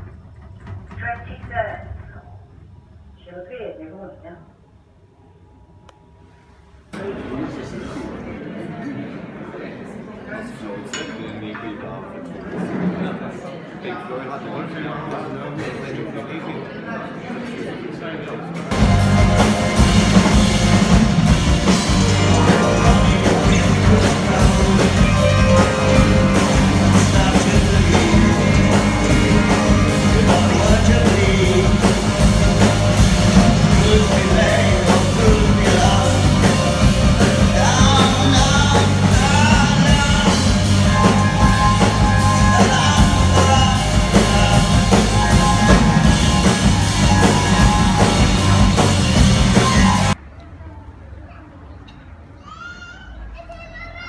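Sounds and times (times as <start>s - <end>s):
drum kit beat: 18.7s - 50.2s
electric guitars: 18.7s - 50.2s
person singing: 21.6s - 48.9s.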